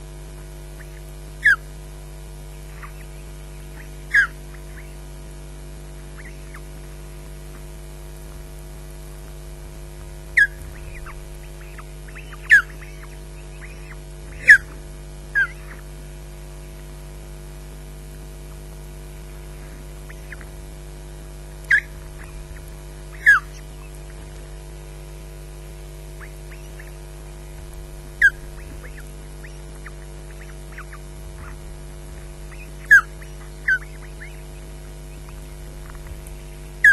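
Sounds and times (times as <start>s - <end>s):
electrical hum: 0.0s - 36.9s
bird whistled calls: 0.8s - 1.6s, 2.7s - 5.0s, 6.2s - 6.7s, 10.3s - 15.8s, 20.1s - 20.5s, 21.7s - 24.6s, 26.2s - 36.9s.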